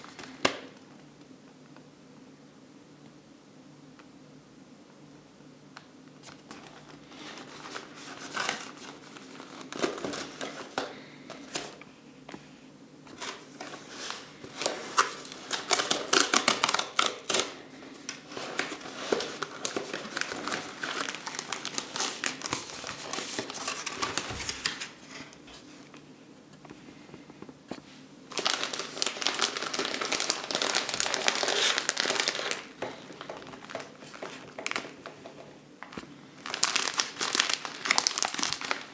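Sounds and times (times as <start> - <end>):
plastic film crinkling: 6.2 - 11.8, 13.1 - 25.7, 28.3 - 38.9.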